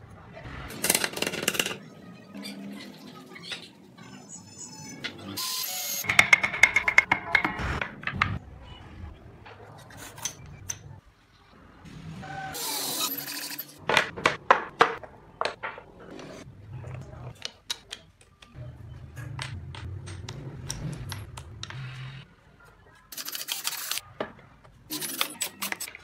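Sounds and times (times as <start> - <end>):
wooden parts clicking and knocking: 6.1 - 8.4, 17.3 - 18.6.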